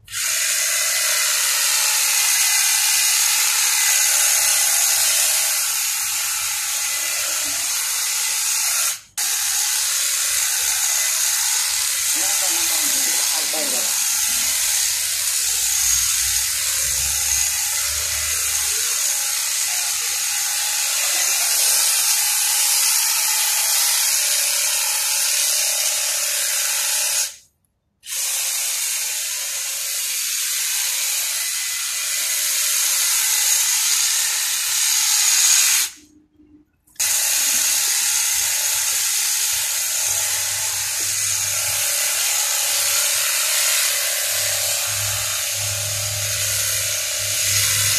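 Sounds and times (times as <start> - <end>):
hedge trimmer cutting shrub: 0.0 - 27.4, 37.0 - 47.9.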